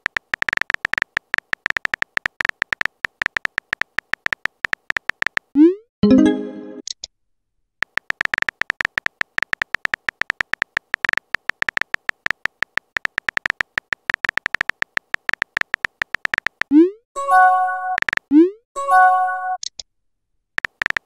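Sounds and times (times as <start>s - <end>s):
phone keyboard typing clicks: 0.0s - 5.5s, 7.8s - 16.8s, 17.9s - 18.3s, 20.6s - 21.0s
message notification chime: 6.0s - 6.8s, 17.2s - 18.0s.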